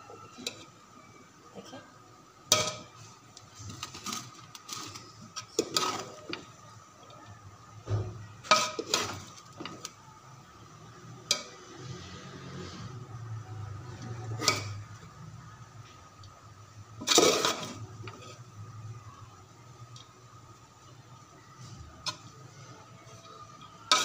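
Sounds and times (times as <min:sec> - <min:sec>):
metal spoon scraping a pot: 0:04.0 - 0:06.4, 0:08.5 - 0:09.4, 0:14.2 - 0:14.8, 0:17.0 - 0:18.5.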